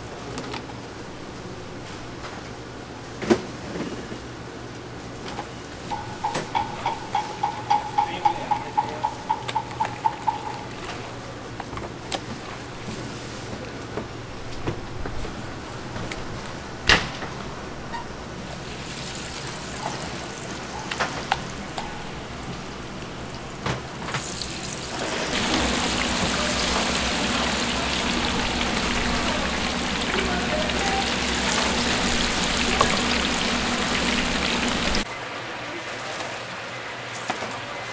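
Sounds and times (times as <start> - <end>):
kitchen clicks and knocks: 5.9 - 11.0
chicken sizzling in hot oil: 18.7 - 21.6, 24.1 - 35.0.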